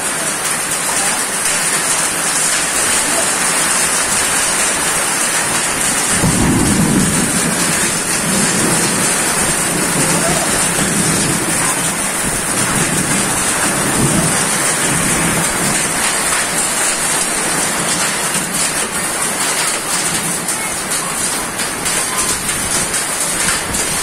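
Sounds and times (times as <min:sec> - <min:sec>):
heavy rain pouring: 0:00.0 - 0:24.0.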